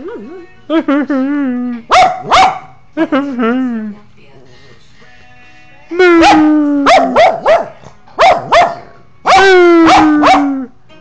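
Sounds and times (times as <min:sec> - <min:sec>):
small dog barking: 0:01.9 - 0:02.7, 0:06.2 - 0:10.7.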